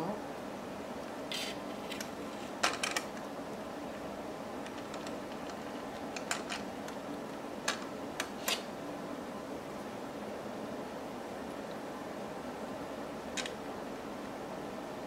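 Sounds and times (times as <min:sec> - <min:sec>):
steady background noise: 0:00.0 - 0:15.0.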